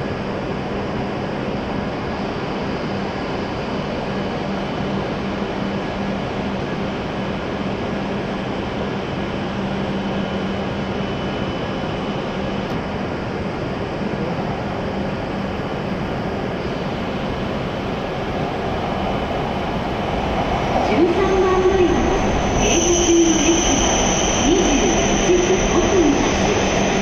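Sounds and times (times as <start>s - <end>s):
station platform hum and hiss: 0.0s - 27.0s
train approaching: 16.7s - 27.0s.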